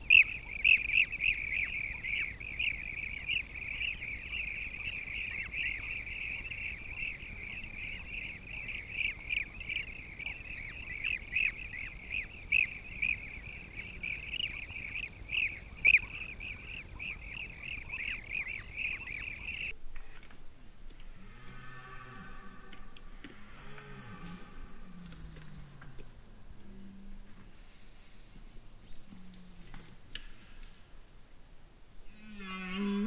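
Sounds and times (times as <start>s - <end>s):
birds calling: 0.0s - 20.1s.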